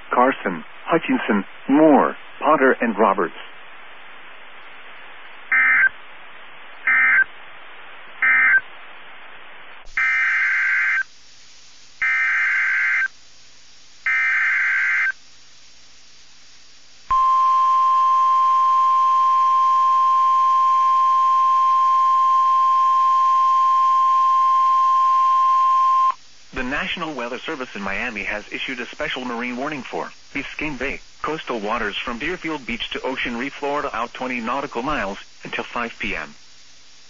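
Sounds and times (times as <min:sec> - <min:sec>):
shrill data bursts: 0:08.2 - 0:08.7, 0:09.9 - 0:11.1, 0:12.0 - 0:13.1, 0:14.0 - 0:15.2, 0:17.1 - 0:29.0.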